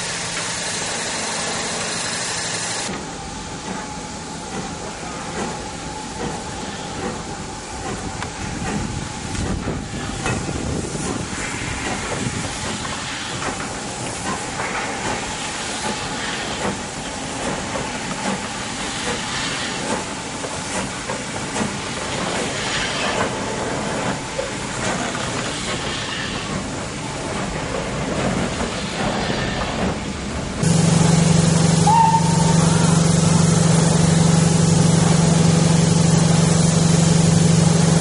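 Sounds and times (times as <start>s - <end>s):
steam hissing: 0.0s - 2.9s, 4.0s - 38.0s
steam locomotive rolling: 0.0s - 38.0s.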